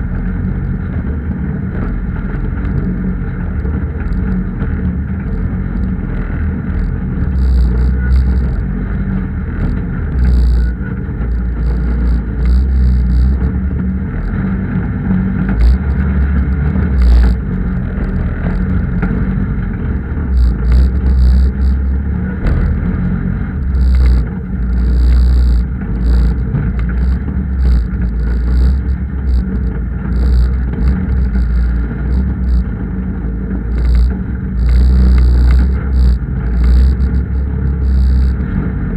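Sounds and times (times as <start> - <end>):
diesel engine rumbling under load: 0.0 - 38.9
knocks and rattles from chassis: 0.1 - 38.9.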